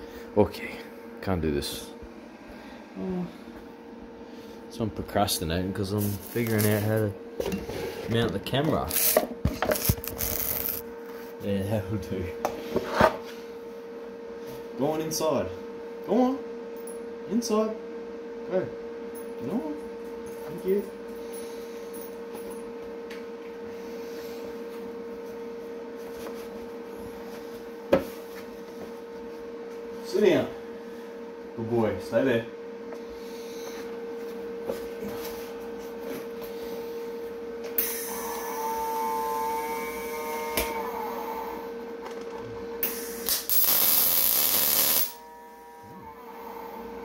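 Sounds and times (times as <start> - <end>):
machine humming: 0.0 - 47.0
welding arc hiss: 8.7 - 10.8, 37.8 - 38.5, 42.8 - 45.2
welder arc strikes: 42.8 - 45.2.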